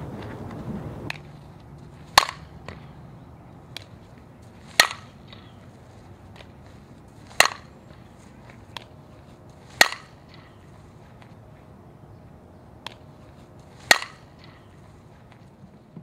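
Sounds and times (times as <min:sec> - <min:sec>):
bat hitting ball: 0:02.0 - 0:03.0, 0:03.7 - 0:05.7, 0:07.2 - 0:09.0, 0:09.6 - 0:11.3, 0:12.8 - 0:15.4.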